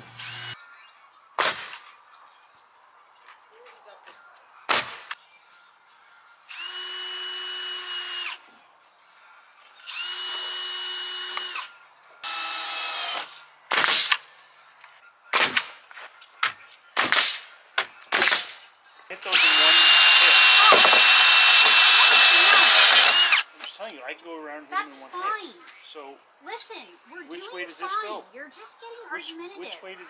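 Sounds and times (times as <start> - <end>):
cordless drill whining: 0.1 - 0.6, 6.5 - 8.4, 9.9 - 13.3, 19.3 - 23.5.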